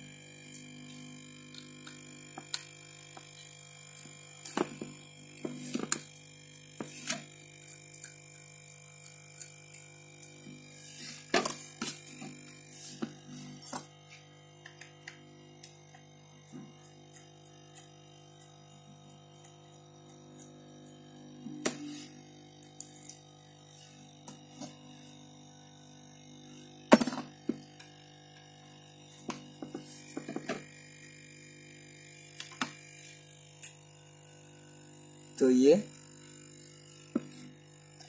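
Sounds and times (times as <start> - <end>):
faint electrical hum: 0.0 - 38.0.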